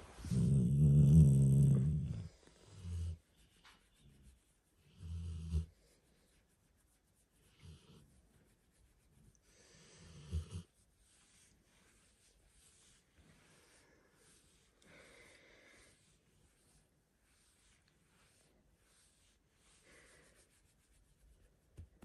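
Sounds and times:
dog grumbling: 0:00.2 - 0:02.3
dog snoring: 0:00.2 - 0:03.2.

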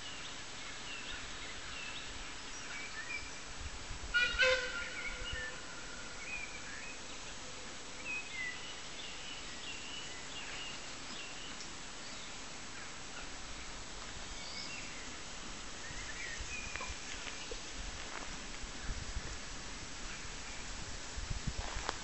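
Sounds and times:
faint outdoor background: 0:00.0 - 0:22.0
distant train whistle: 0:04.1 - 0:06.1
small birds chirping: 0:04.8 - 0:19.4.

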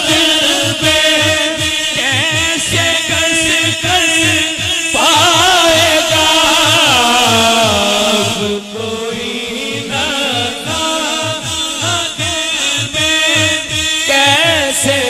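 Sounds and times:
man singing ornamented notes: 0:00.0 - 0:15.0.

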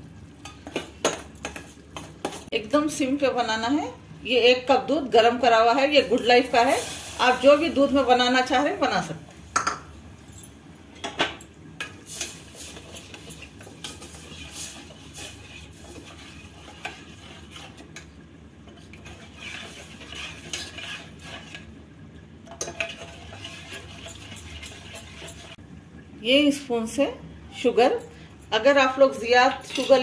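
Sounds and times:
spoon scraping steel saucepan: 0:12.1 - 0:18.1, 0:18.7 - 0:21.7, 0:22.5 - 0:25.6, 0:29.5 - 0:30.0.

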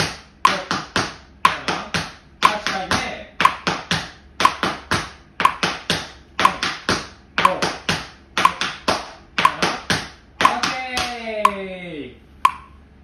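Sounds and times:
tap shoes on wooden floor: 0:00.0 - 0:11.2
metronome beeps: 0:11.4 - 0:11.7, 0:12.4 - 0:12.8.

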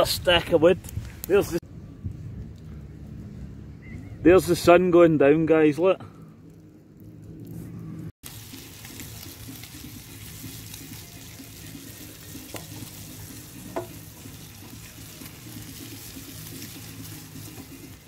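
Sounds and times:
sharp fire crackles: 0:06.2 - 0:18.0
campfire hissing: 0:08.2 - 0:18.0.

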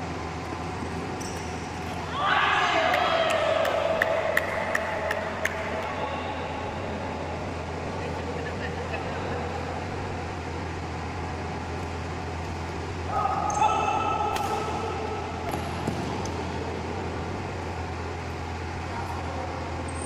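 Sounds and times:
hall hum: 0:00.0 - 0:20.0
racket striking shuttlecock: 0:13.4 - 0:16.6.

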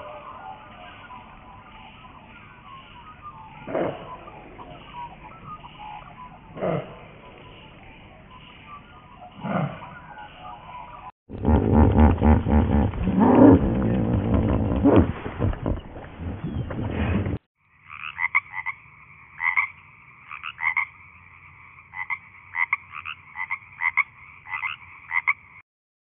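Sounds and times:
deep animal-like rumble: 0:11.3 - 0:17.4
frog chirping: 0:17.6 - 0:25.6.

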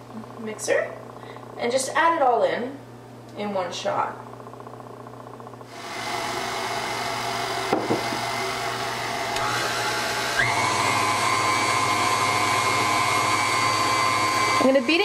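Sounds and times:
stand mixer motor whine: 0:04.4 - 0:15.0.

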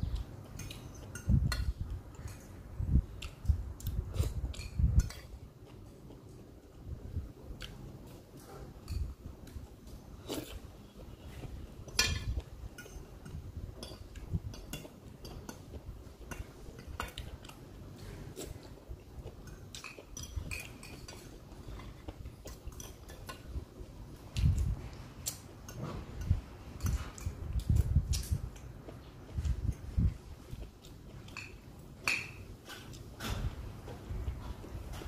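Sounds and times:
chewing: 0:07.6 - 0:23.6
cutlery clinking on a plate: 0:11.9 - 0:15.6.

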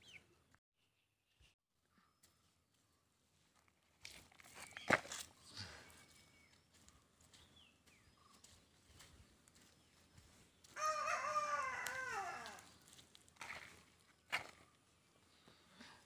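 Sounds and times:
rooster crowing: 0:10.7 - 0:12.7.

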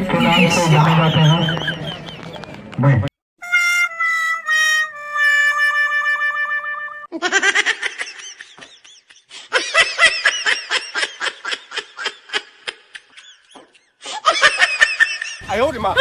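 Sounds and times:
high-pitched cackling laughter: 0:07.1 - 0:16.0.

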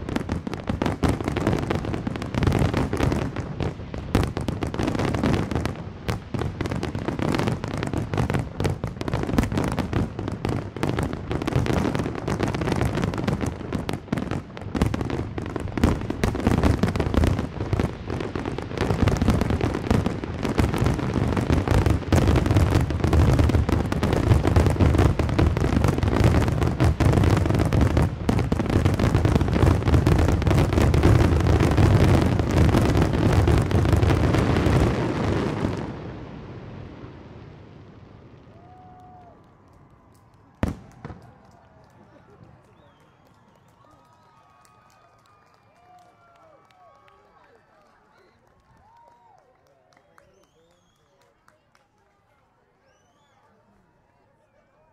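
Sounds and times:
fireworks booming: 0:00.0 - 0:39.3, 0:40.6 - 0:42.8.

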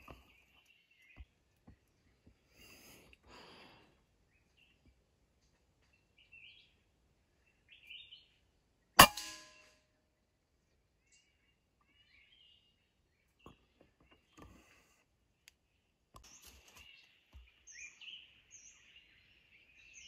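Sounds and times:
faint bird chirps: 0:00.0 - 0:09.0, 0:10.0 - 0:20.0
air rifle shot: 0:09.0 - 0:09.6.

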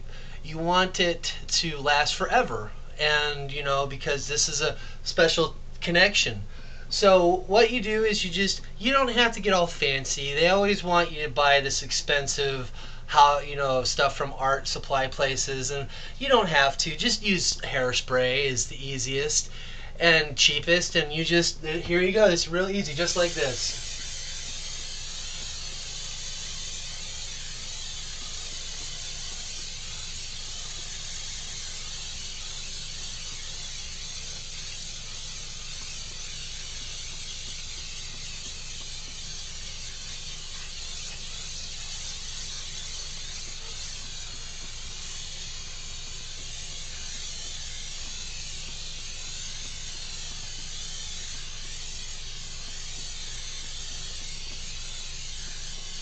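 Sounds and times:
aerosol can spraying hiss: 0:21.4 - 0:56.0.

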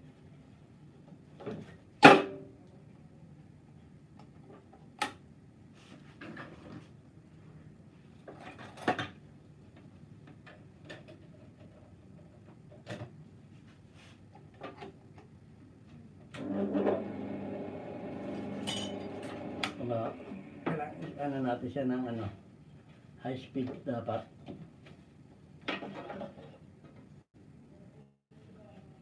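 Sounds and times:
power tool motor running: 0:16.4 - 0:21.0.

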